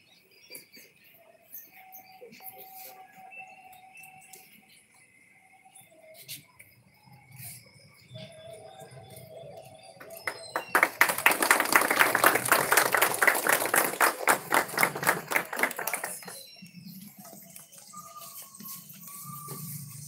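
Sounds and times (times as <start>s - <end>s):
group of people clapping: 9.9s - 17.9s.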